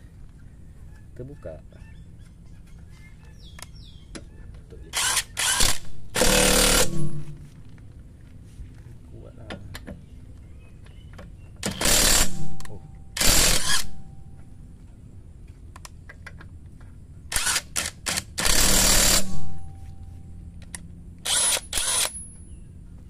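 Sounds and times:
impact wrench hammering lug nuts: 5.5s - 7.4s, 11.6s - 14.0s, 18.2s - 19.8s.

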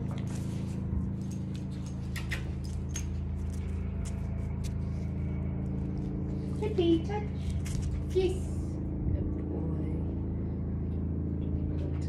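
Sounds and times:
low mechanical hum: 0.0s - 12.0s
harness and leash clip jingling: 0.7s - 5.3s
dog claws clicking on tiles: 1.3s - 4.8s.

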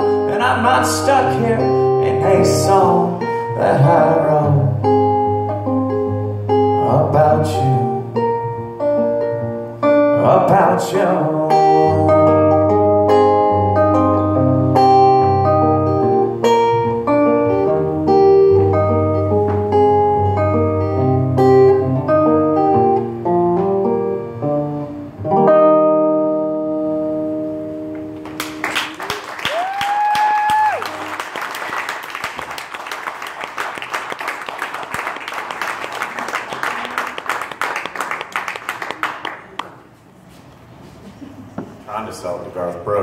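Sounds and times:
acoustic guitar playing: 0.0s - 29.2s
audience applauding: 28.2s - 39.8s.

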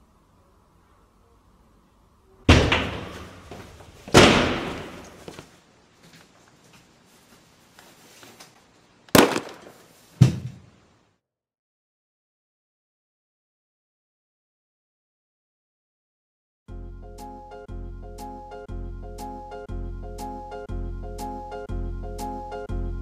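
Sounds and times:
loud bangs: 2.5s - 5.3s, 9.2s - 9.8s.

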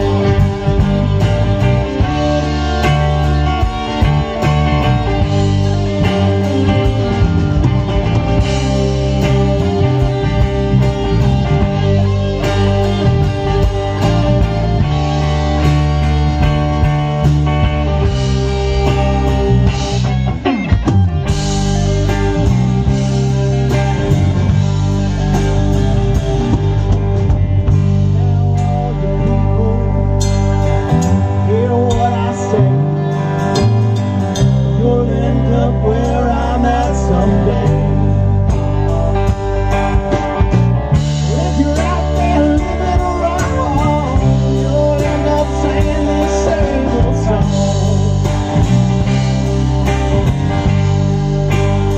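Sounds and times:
bass guitar: 0.0s - 51.9s
drums: 0.0s - 51.9s
electric guitars: 0.0s - 51.9s
person singing: 27.9s - 33.6s, 34.4s - 39.9s, 41.2s - 49.2s.

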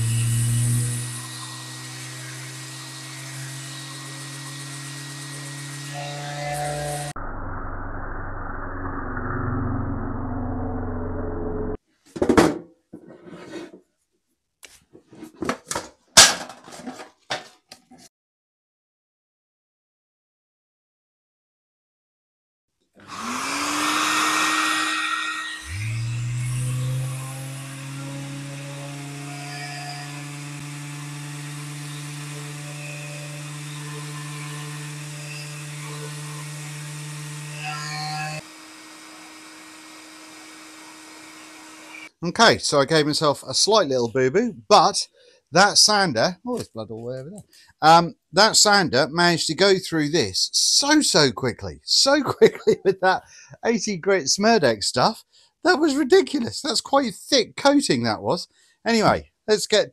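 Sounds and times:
orbital sander on wood: 0.0s - 7.2s, 23.0s - 42.1s.

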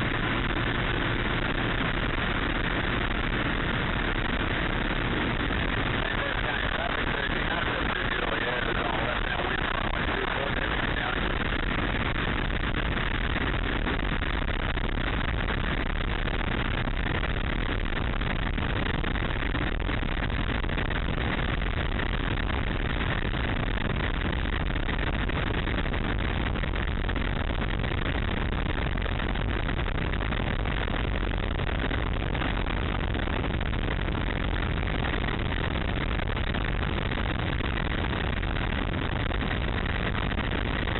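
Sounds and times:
constant rushing noise: 0.0s - 40.9s.

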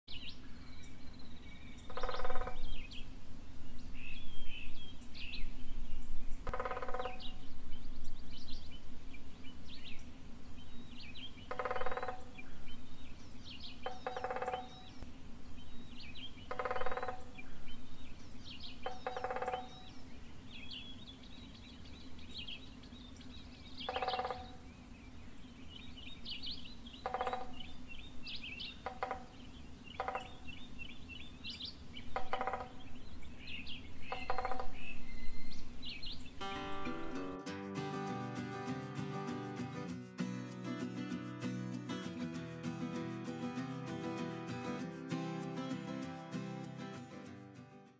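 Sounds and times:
songbirds singing: 0.1s - 40.8s
woodpecker drumming on metal: 1.9s - 2.6s, 6.4s - 7.3s, 11.5s - 12.4s, 13.8s - 14.8s, 16.5s - 17.3s, 18.8s - 19.8s, 23.9s - 24.6s, 27.0s - 27.6s, 28.8s - 29.4s, 30.0s - 30.4s, 32.1s - 32.8s, 34.1s - 34.8s.

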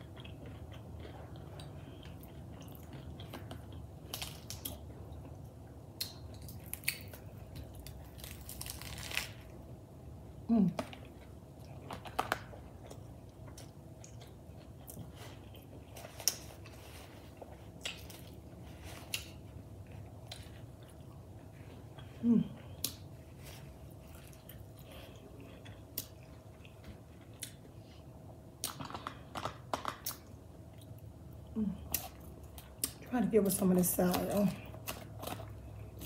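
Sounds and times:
person humming: 22.2s - 22.6s.

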